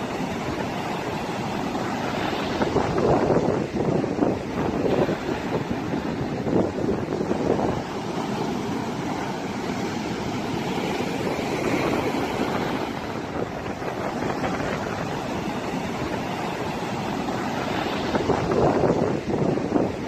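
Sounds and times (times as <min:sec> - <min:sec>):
waves breaking on beach: 0:00.0 - 0:20.0.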